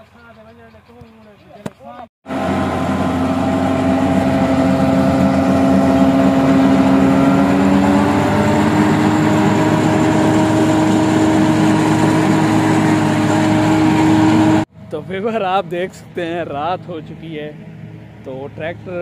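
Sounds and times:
tractor engine running: 2.3 - 14.9.

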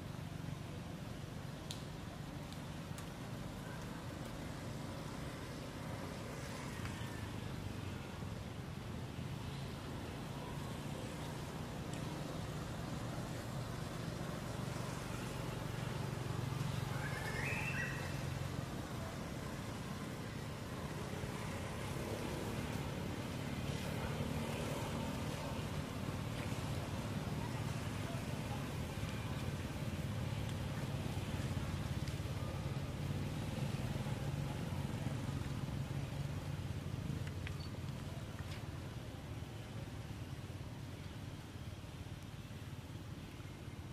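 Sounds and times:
faint ticks: 1.6 - 3.2.

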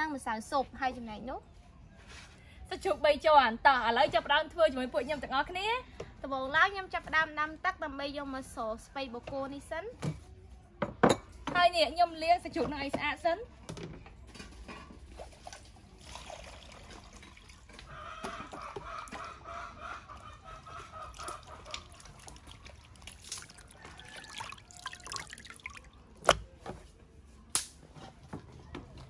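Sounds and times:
water sloshing and dripping: 15.0 - 26.6.

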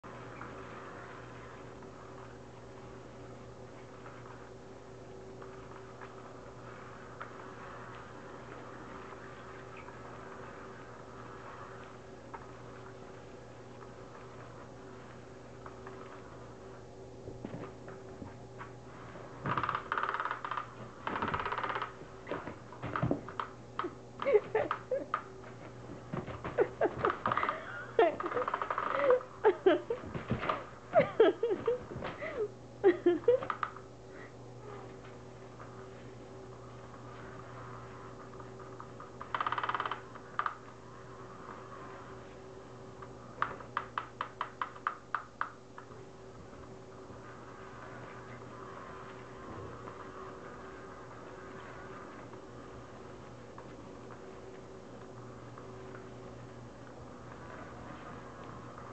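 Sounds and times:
toy motor rapid clicking: 19.5 - 21.9, 39.2 - 40.6.

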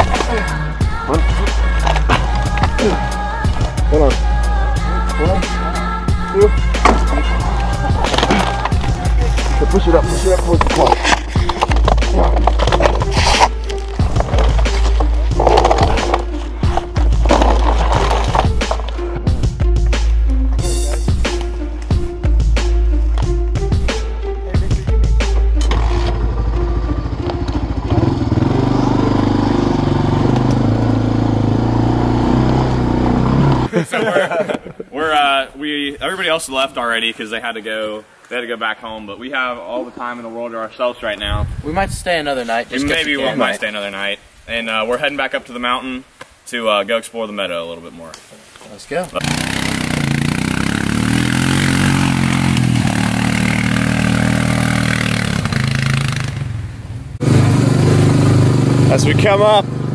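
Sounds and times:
quad bike engine running: 25.6 - 33.7, 49.2 - 56.6, 57.2 - 59.9
tyres hissing in dirt and leaves: 42.0 - 58.9.

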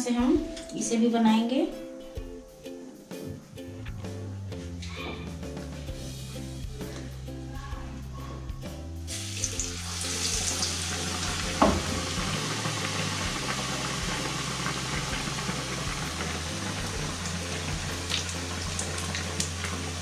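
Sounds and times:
bread sizzling in hot oil: 9.1 - 20.0.

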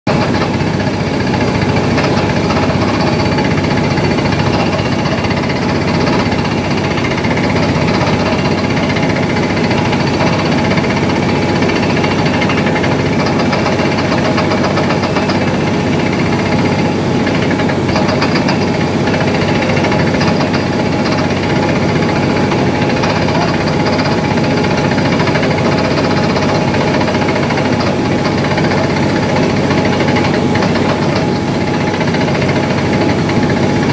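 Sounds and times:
engine running under load: 0.1 - 33.9
rapid drill hammering: 0.1 - 33.9.

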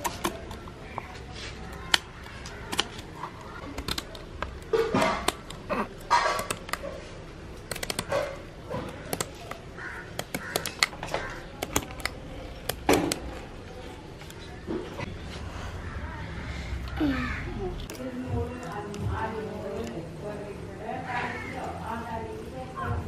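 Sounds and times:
scissors snipping: 7.7 - 13.5.

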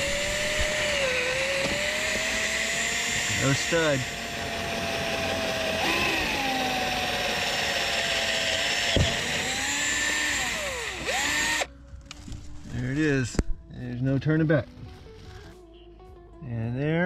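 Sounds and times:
cordless drill whining: 0.0 - 11.7.

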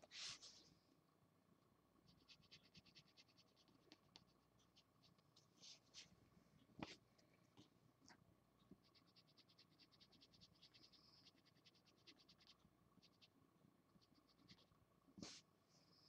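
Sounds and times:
felt-tip marker strokes on paper: 0.0 - 0.7, 2.1 - 4.0, 4.7 - 6.1, 15.2 - 15.5.

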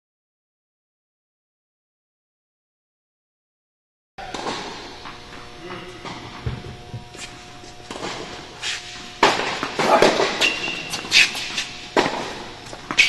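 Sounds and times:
footsteps on court: 4.8 - 13.0
tennis ball hit with rackets: 11.9 - 13.0.

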